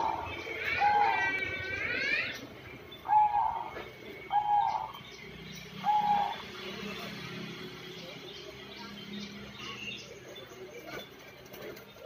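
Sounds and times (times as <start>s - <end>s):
dove cooing: 0.0s - 2.4s, 3.0s - 5.0s, 5.8s - 6.4s.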